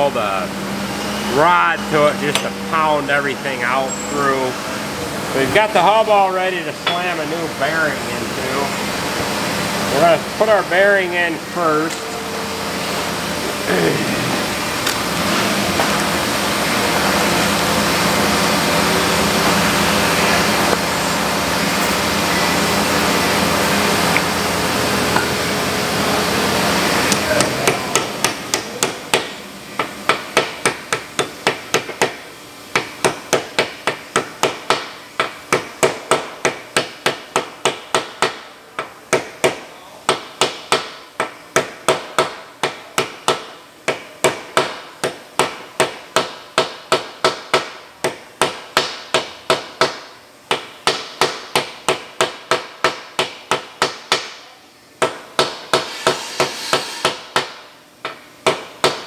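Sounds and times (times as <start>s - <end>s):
hammer striking metal: 6.8s - 7.4s, 55.0s - 57.6s.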